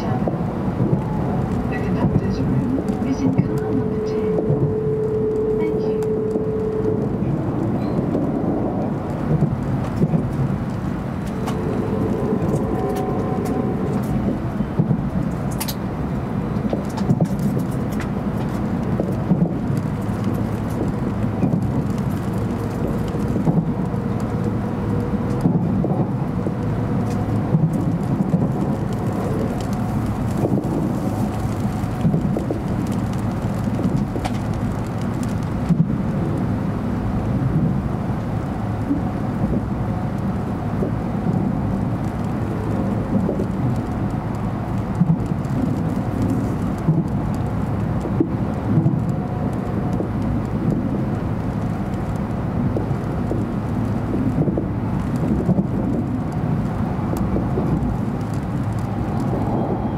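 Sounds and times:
train interior rumble: 0:00.0 - 0:59.9
faint whine: 0:09.6 - 0:15.7, 0:58.1 - 0:59.9.

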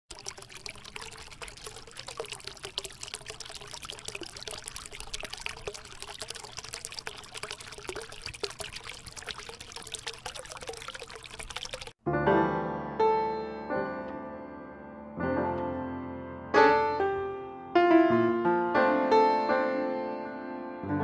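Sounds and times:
water pouring and trickling: 0:00.1 - 0:12.0.

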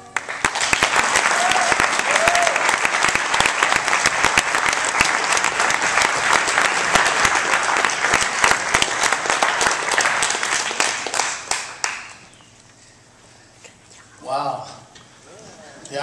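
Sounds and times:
congregation applauding: 0:00.0 - 0:12.3.

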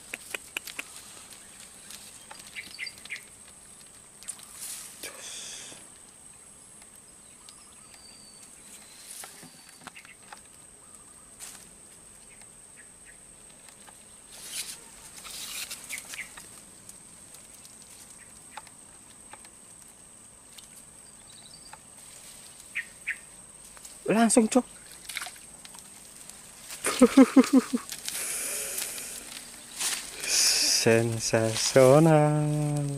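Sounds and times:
soft clicks and rustles of tackle: 0:24.8 - 0:26.8
thin steady high tone: 0:30.2 - 0:32.9.

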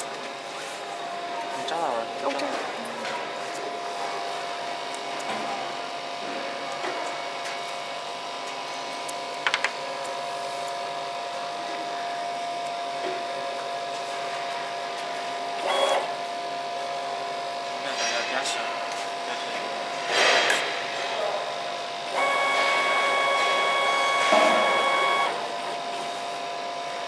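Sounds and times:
laser cutting machine humming: 0:14.6 - 0:20.0, 0:21.4 - 0:27.0.

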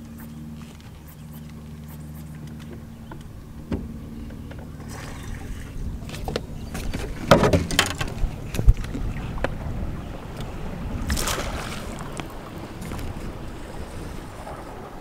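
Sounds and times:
knocks and rubbing on boat deck: 0:00.0 - 0:10.3
low steady hum: 0:00.0 - 0:15.0.

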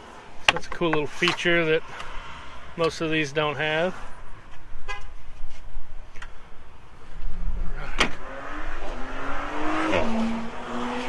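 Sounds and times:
vehicle engine accelerating: 0:07.4 - 0:11.0.

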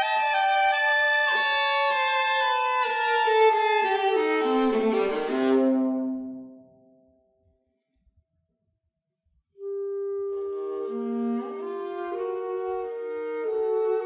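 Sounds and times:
viola and clarinet duet: 0:00.0 - 0:06.5, 0:09.6 - 0:14.0.

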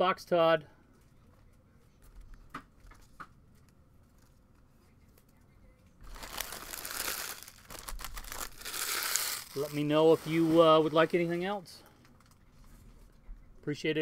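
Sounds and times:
wrappers crinkling and rustling: 0:06.0 - 0:12.5.

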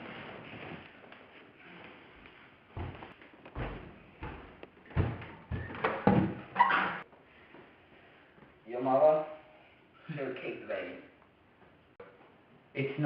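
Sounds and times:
heavy footsteps: 0:00.0 - 0:06.5.

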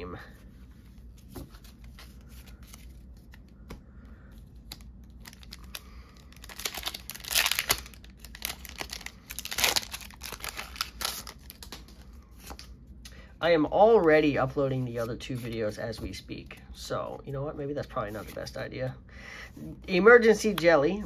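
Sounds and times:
foil wrapper crinkling: 0:04.6 - 0:12.6
foil wrapper ripping: 0:04.7 - 0:11.8.

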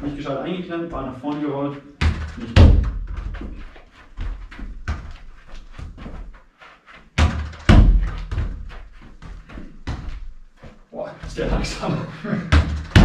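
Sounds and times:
football knocking off walls: 0:02.0 - 0:03.6, 0:07.2 - 0:08.7, 0:12.5 - 0:13.0
shoe scuffs on carpet: 0:05.4 - 0:07.1.

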